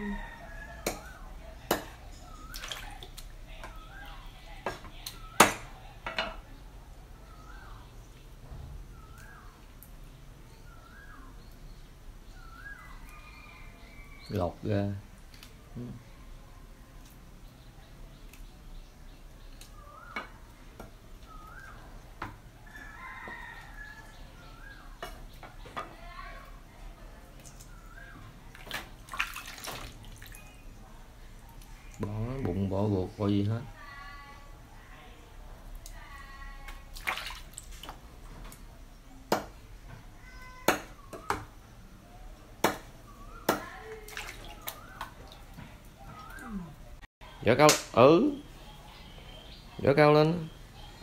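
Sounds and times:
water sloshing in basin: 1.0s - 4.0s, 27.0s - 32.4s, 36.6s - 38.8s, 43.2s - 47.0s
bird calling: 2.0s - 4.3s, 8.9s - 9.7s, 10.5s - 14.5s, 17.8s - 26.0s, 43.0s - 47.0s.

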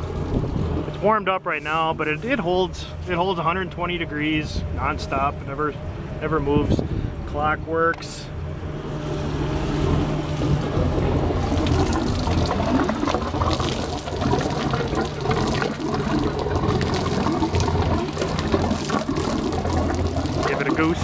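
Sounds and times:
boat engine idling: 0.0s - 21.0s
water gushing onto concrete: 11.3s - 21.0s.

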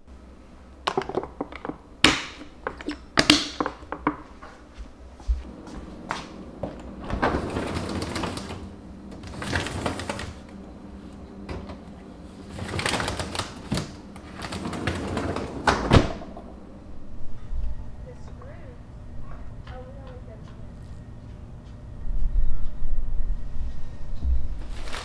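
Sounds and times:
freezer drawer sliding open: 7.0s - 10.5s, 11.4s - 16.2s
plastic bags rustling: 24.6s - 25.0s.

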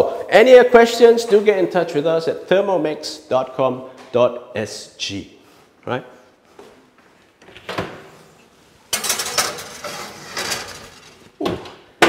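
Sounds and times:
baking tray scraping on oven rack: 8.9s - 11.3s.

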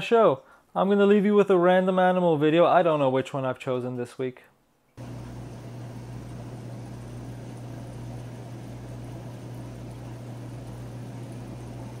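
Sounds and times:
aquarium pump hum: 5.0s - 12.0s
filtration hiss: 5.0s - 12.0s.

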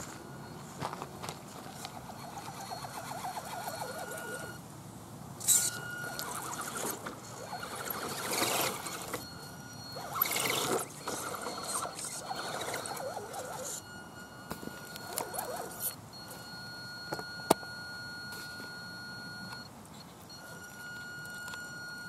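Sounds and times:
electric motor whining: 1.5s - 4.6s, 5.4s - 13.9s, 14.5s - 16.0s.

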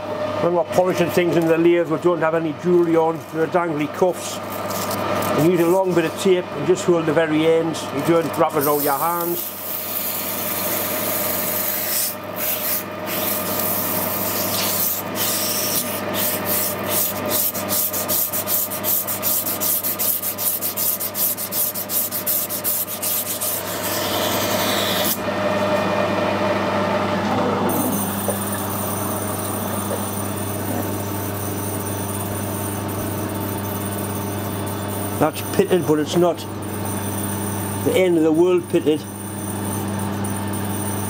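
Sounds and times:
lathe humming: 0.0s - 41.0s
abrasive tape rasping on metal: 11.4s - 24.8s.

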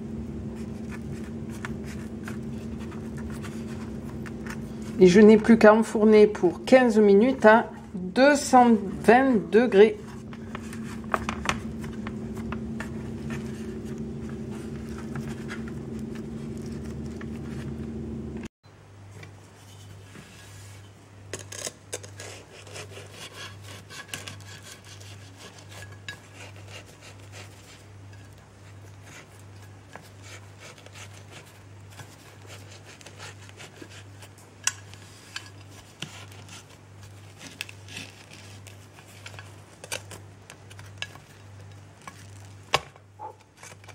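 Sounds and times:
dough handling noise: 0.0s - 18.5s
low hum: 0.0s - 18.5s
knife sawing through crust: 0.6s - 5.0s, 22.2s - 27.9s, 28.7s - 34.3s.

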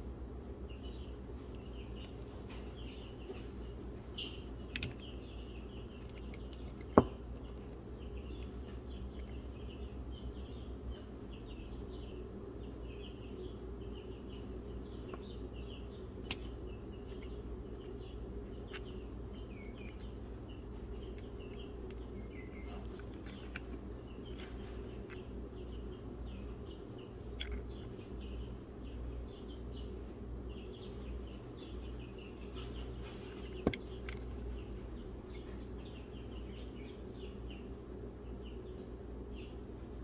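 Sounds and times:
low steady hum: 0.0s - 40.0s
small birds chirping: 0.0s - 40.0s
sharp metal clicks: 16.2s - 19.0s.

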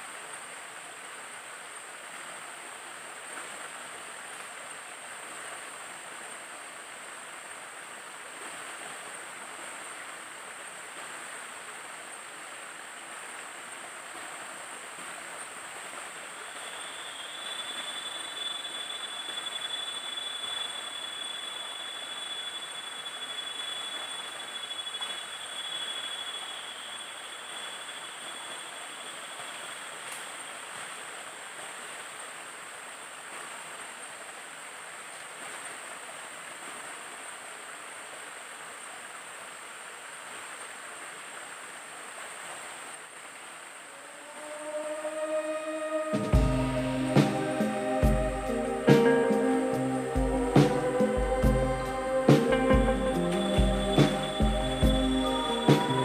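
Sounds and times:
stream splashing over rocks: 0.0s - 44.2s
high steady tone: 44.7s - 56.0s.

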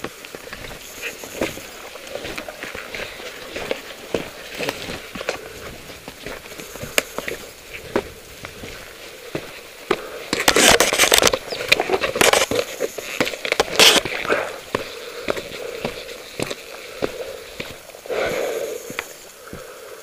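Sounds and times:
hands and boots scraping rock: 0.0s - 17.8s
person sniffing: 14.1s - 16.2s, 18.1s - 20.0s.

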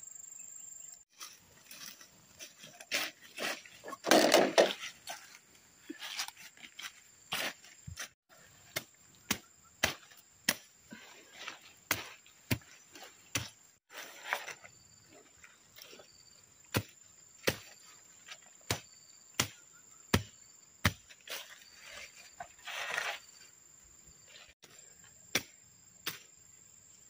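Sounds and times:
machete chopping brush: 6.0s - 10.8s, 11.4s - 14.6s, 16.7s - 22.0s, 24.6s - 26.4s.

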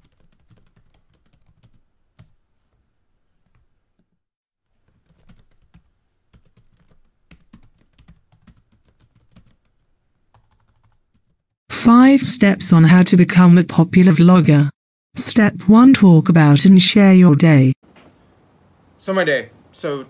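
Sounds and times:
keyboard typing: 0.0s - 2.4s, 4.8s - 11.5s.

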